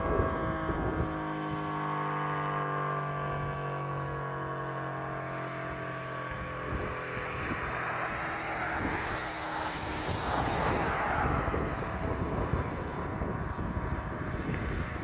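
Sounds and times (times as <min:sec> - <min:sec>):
siren low hum: 0:00.0 - 0:15.0
vehicle passing: 0:05.2 - 0:15.0.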